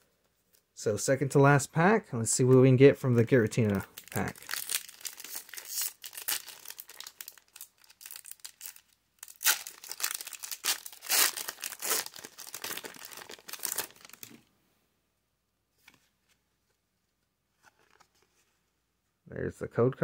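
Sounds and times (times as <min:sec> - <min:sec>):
foil wrapper crinkling and tearing: 0:03.6 - 0:14.4.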